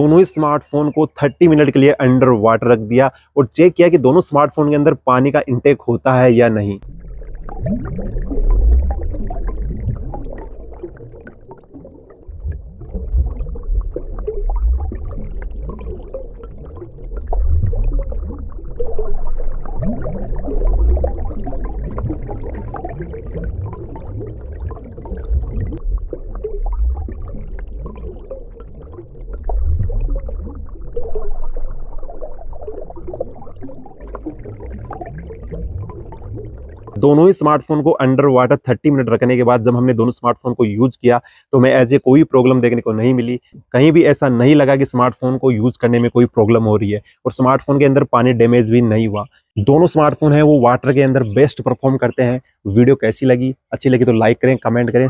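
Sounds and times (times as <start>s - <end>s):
underwater rumble with bubbling: 6.8s - 37.2s.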